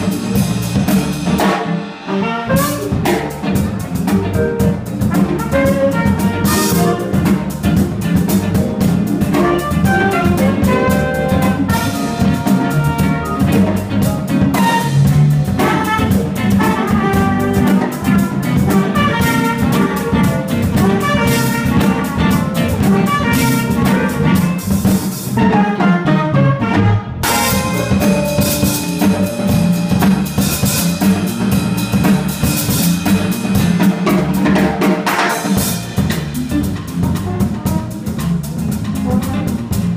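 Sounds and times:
drum kit: 0.0s - 39.9s
electric bass: 0.0s - 39.9s
electric keyboard: 0.0s - 39.9s
trumpet melody: 1.5s - 3.3s, 4.6s - 7.6s, 8.6s - 34.2s
tenor saxophone: 2.0s - 3.0s, 5.2s - 7.3s, 9.3s - 13.7s, 14.6s - 24.8s.

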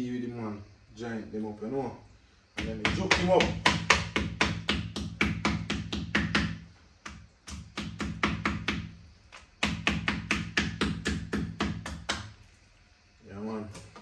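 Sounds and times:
knife chopping on cutting board: 2.6s - 8.9s.

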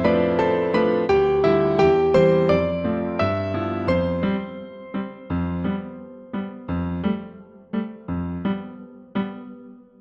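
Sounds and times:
piano-like keyboard notes: 0.0s - 10.0s.

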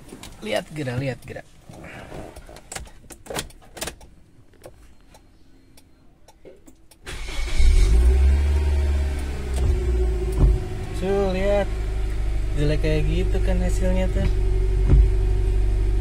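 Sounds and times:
low motor hum: 7.8s - 16.0s.

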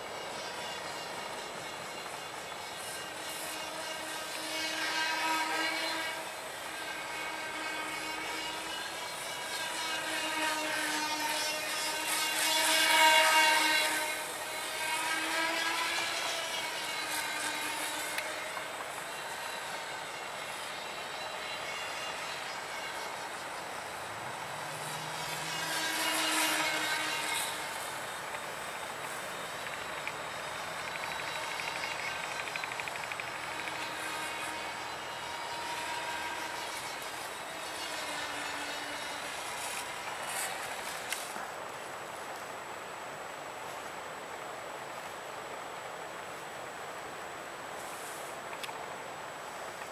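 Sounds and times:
model airplane motor whining: 0.0s - 44.5s
background hiss: 0.0s - 49.9s.

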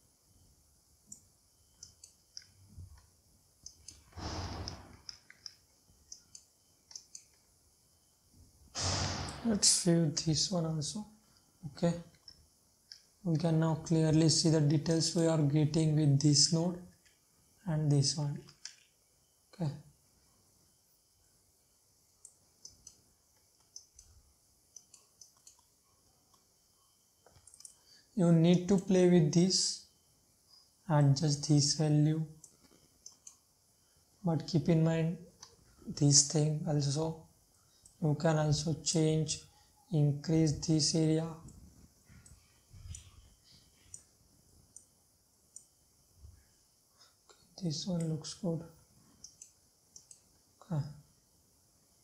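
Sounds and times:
computer mouse clicks: 1.1s - 7.5s, 18.4s - 19.0s, 22.2s - 25.7s, 27.2s - 27.8s, 32.4s - 33.4s, 41.4s - 43.2s, 43.8s - 44.1s, 44.7s - 44.9s, 45.5s - 45.8s, 49.2s - 50.3s.

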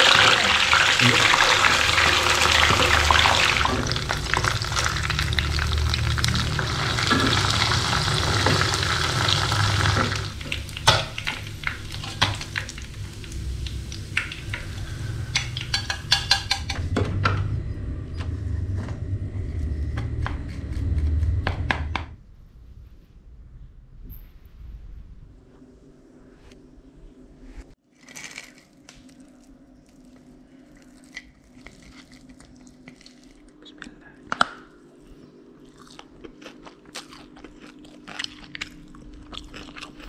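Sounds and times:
fish sizzling in hot oil: 0.0s - 16.6s
splatter screen against pan: 10.0s - 16.8s.

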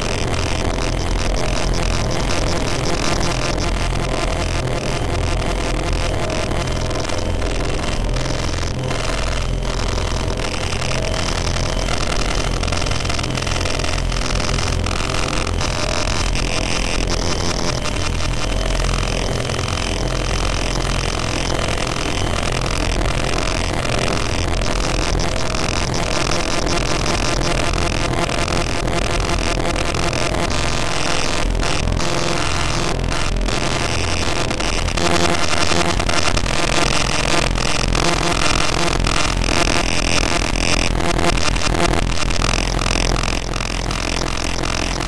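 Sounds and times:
wall of distorted noise: 0.0s - 45.0s.

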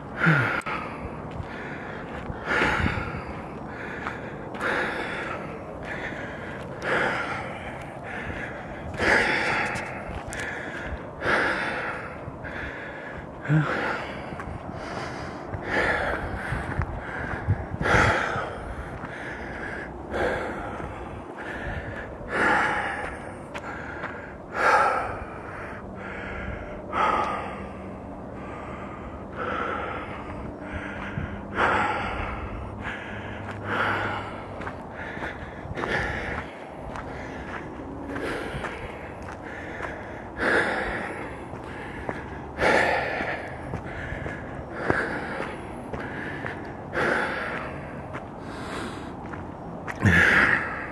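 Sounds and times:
person breathing hard: 0.0s - 50.9s.

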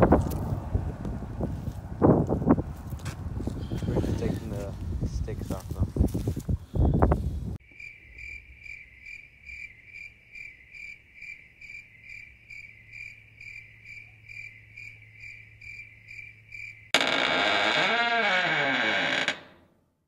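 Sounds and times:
cricket chirping: 7.6s - 17.2s.

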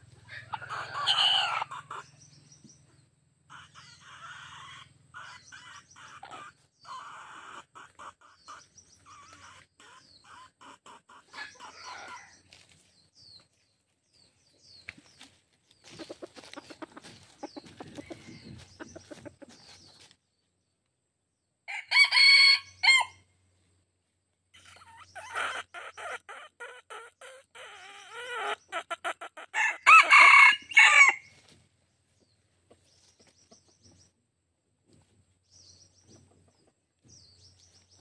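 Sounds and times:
hen clucking: 0.0s - 12.8s, 15.0s - 20.2s, 24.6s - 31.5s
small birds chirping: 0.0s - 21.1s, 24.4s - 29.6s, 30.6s - 38.0s
rooster crowing: 21.7s - 23.2s, 29.6s - 31.2s.

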